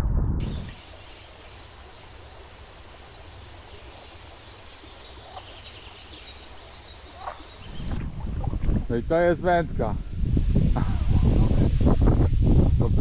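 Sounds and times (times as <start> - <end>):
birds calling faintly: 0.4 - 8.0.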